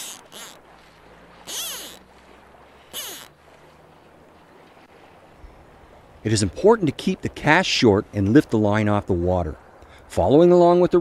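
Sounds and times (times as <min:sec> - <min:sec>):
fly line swishing: 0:00.0 - 0:00.6, 0:01.4 - 0:02.0, 0:02.9 - 0:03.4
running water: 0:00.0 - 0:11.0.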